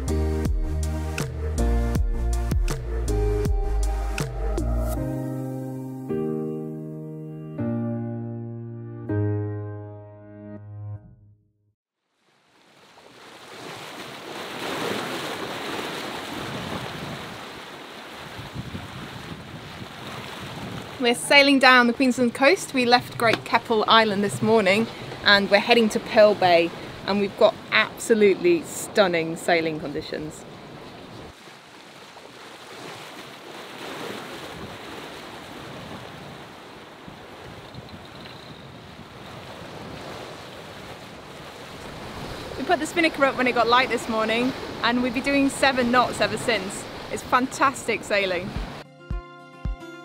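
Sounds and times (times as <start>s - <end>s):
sea splashing along a hull: 12.0s - 48.8s
wind buffeting microphone: 16.3s - 17.4s, 18.1s - 27.9s, 34.4s - 48.8s.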